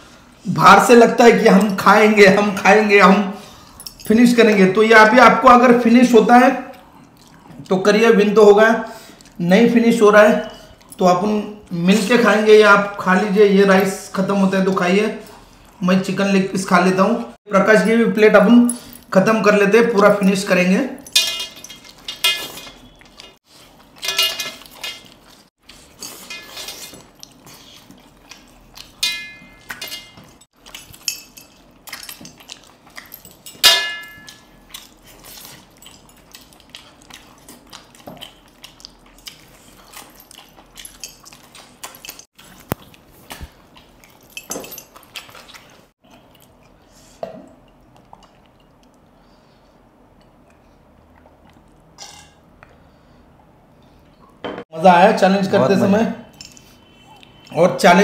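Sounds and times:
spoon clinking on steel plates: 20.2s - 23.4s, 24.0s - 25.1s, 29.0s - 31.6s, 33.2s - 34.5s.

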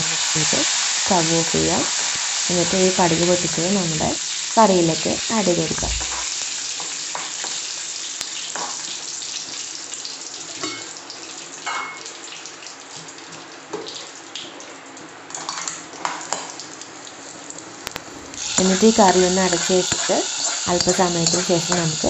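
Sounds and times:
spices sizzling in hot oil: 0.0s - 22.0s
ladle scraping a pan: 17.9s - 21.8s.

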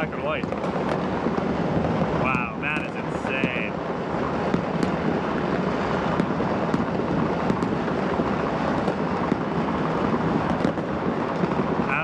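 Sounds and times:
distant fireworks crackling: 0.0s - 12.0s
firecracker bangs: 0.0s - 12.0s.

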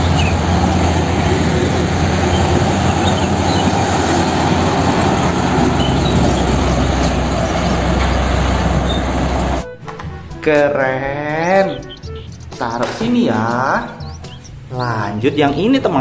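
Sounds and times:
diesel truck engine drone: 0.0s - 9.9s
tyre and road noise: 0.0s - 10.6s, 11.4s - 16.0s.

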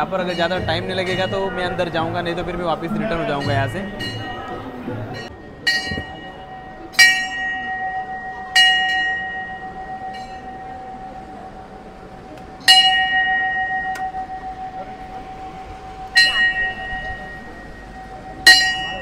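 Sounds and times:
brass bell ringing: 0.0s - 11.7s, 12.6s - 19.0s.

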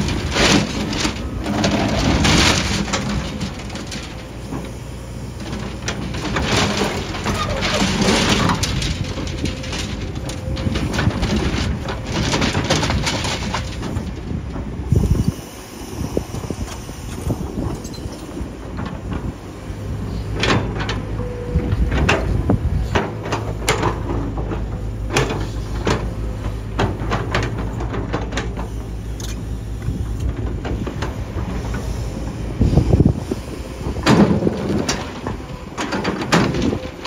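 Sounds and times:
bucket clanking and scraping: 0.0s - 4.8s, 5.4s - 15.2s, 21.8s - 28.8s, 33.9s - 37.0s
excavator diesel engine: 0.0s - 37.0s.

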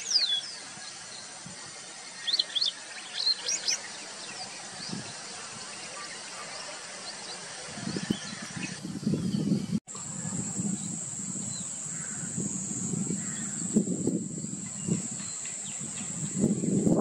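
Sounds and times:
steady high-pitched hum: 7.5s - 17.0s
faint bird calls: 10.1s - 13.8s.

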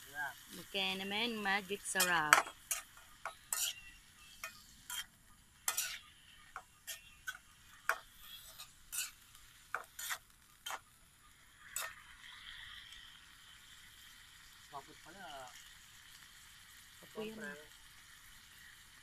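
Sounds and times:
faint sizzling: 0.0s - 19.0s
spatula scraping metal pan: 1.8s - 10.8s, 11.6s - 12.6s.

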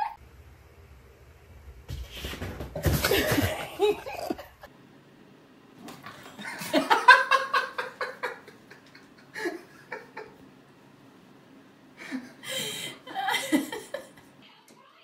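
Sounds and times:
person laughing: 3.0s - 4.7s, 6.4s - 10.4s, 12.0s - 14.2s.

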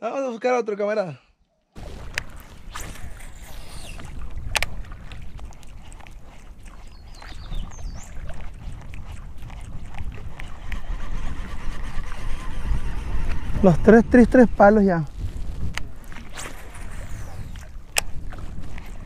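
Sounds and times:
fishing tackle noises: 1.8s - 9.4s, 15.1s - 19.0s
water noises: 1.8s - 19.0s
wind buffeting microphone: 1.8s - 19.0s.

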